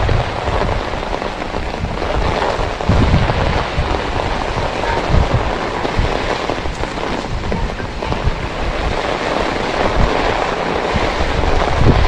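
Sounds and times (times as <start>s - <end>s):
heavy rain on pavement: 0.0s - 12.0s
wind buffeting microphone: 0.0s - 12.0s.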